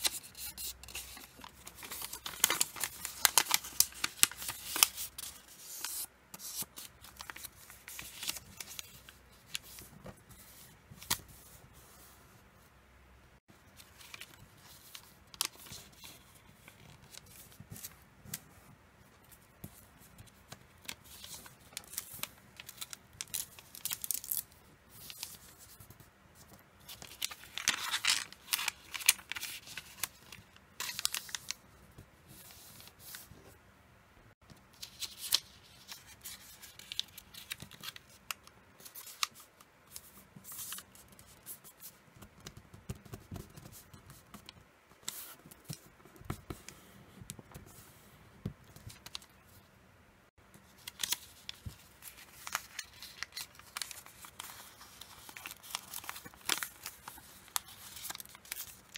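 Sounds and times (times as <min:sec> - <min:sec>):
paper rustling and crinkling: 0:00.0 - 0:12.2, 0:19.3 - 0:31.6, 0:34.8 - 0:48.0, 0:48.7 - 0:49.5, 0:50.6 - 0:58.9.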